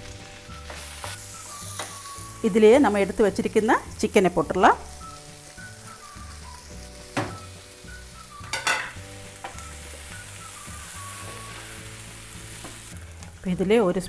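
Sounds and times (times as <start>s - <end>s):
food sizzling in frying pan: 0.0s - 14.0s.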